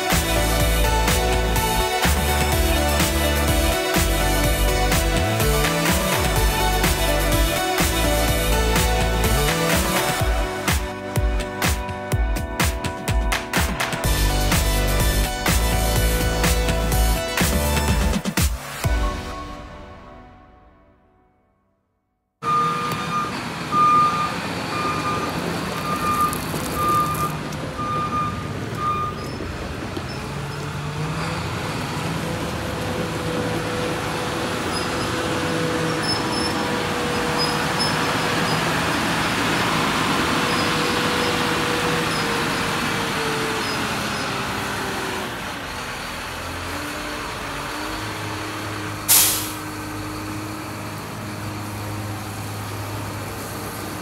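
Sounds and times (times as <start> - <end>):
diesel engine running: 0.0 - 19.5, 22.4 - 54.0
backup alarm beeping: 22.4 - 29.4
air release hiss: 49.1 - 49.7.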